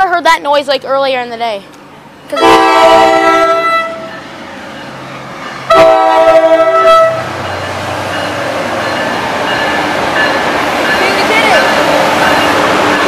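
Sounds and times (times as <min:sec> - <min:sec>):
train rumbling past: 0:00.0 - 0:13.0
train air horn blast: 0:02.4 - 0:04.1, 0:05.7 - 0:07.3.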